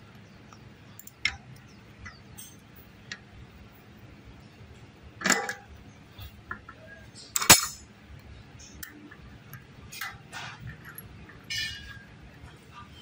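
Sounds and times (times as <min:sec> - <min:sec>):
metal tools clinking and scraping: 0:02.3 - 0:02.7, 0:05.2 - 0:07.9, 0:08.6 - 0:12.9.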